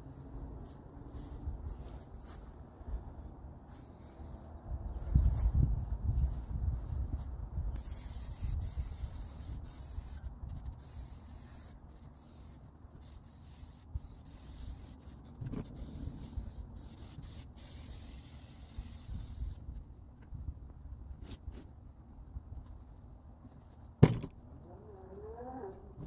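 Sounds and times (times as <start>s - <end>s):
spray paint can hissing: 7.7s - 19.8s.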